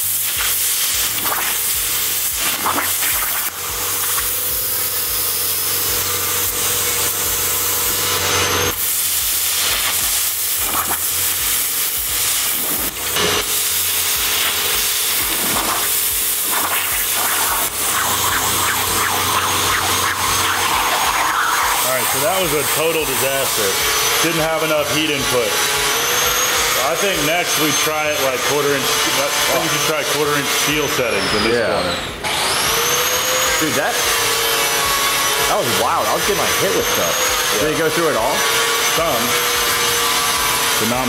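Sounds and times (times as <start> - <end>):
plasma torch arc hissing: 0.0 - 25.3.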